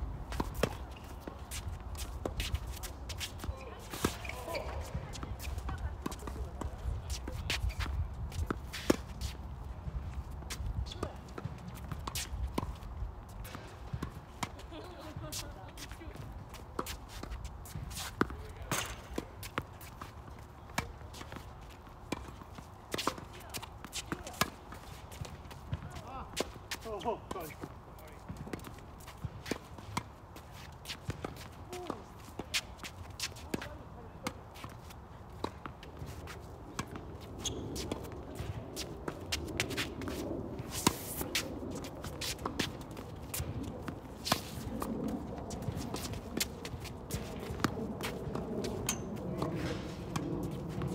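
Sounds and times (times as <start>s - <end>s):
tennis ball bouncing on court: 0.2s - 50.9s
tennis ball hit by racquets: 16.7s - 20.1s, 30.9s - 50.9s.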